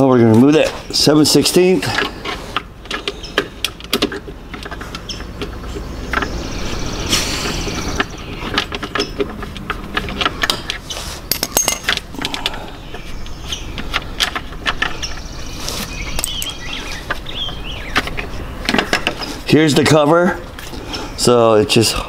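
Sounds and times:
bird chirping: 2.8s - 11.2s, 12.1s - 21.5s
metal hand tool clinking on nut: 11.3s - 12.3s.

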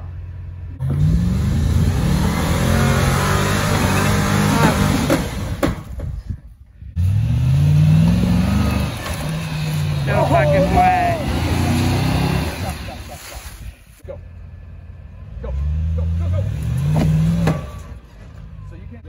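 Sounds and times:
truck engine revving: 0.0s - 5.9s, 6.9s - 19.0s.

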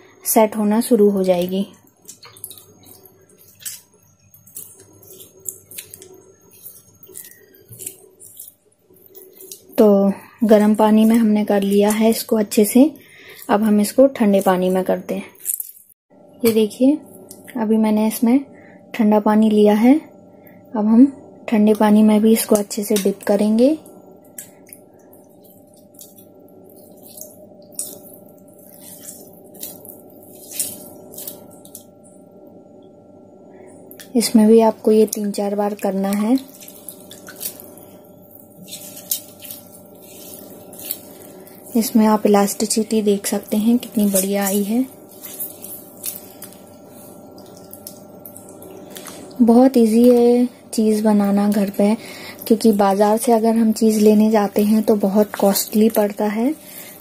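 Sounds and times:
wet squelches of cheese curd: 0.6s - 16.0s, 22.4s - 32.0s, 33.6s - 57.0s
water splashes and drips: 25.4s - 31.9s, 35.1s - 49.2s.

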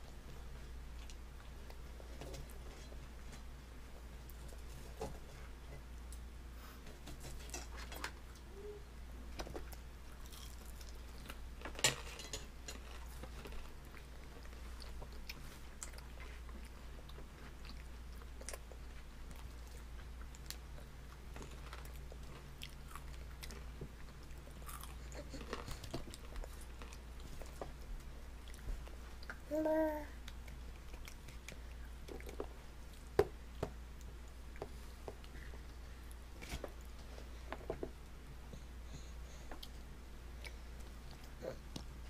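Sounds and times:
baby chewing a chip: 10.1s - 11.8s, 12.7s - 29.4s.

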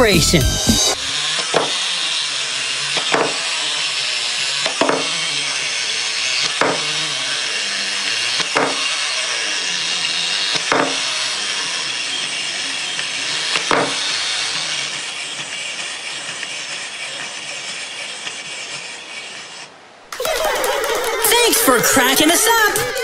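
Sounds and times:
clockwork whirring: 0.0s - 23.0s
sharp knocks: 8.6s - 8.8s, 10.7s - 11.0s.

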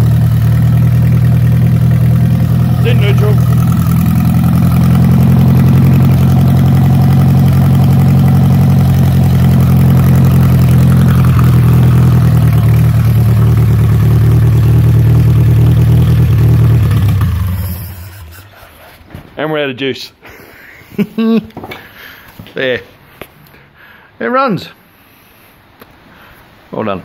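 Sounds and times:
truck engine idling: 0.0s - 19.1s.

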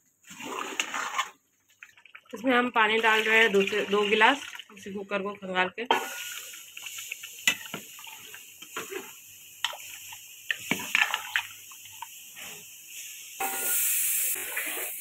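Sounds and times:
liquid sloshing in pot: 0.2s - 4.9s, 6.0s - 12.2s
steady hiss: 6.0s - 15.0s.

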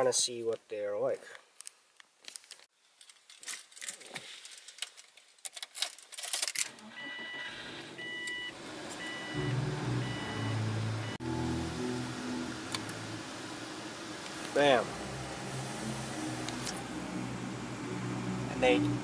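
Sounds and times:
car keys jangling: 3.0s - 6.8s
dashboard warning chime beeping: 7.0s - 11.4s
car radio music: 8.0s - 19.0s
fan hiss: 9.5s - 19.0s.

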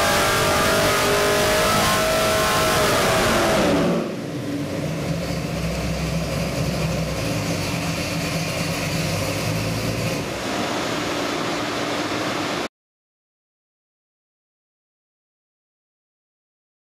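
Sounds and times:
engine idling: 4.1s - 12.7s.

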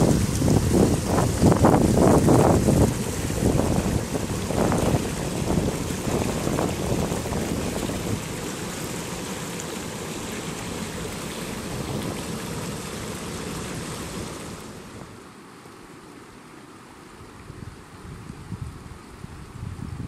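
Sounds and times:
water rushing over rocks: 0.0s - 15.7s.

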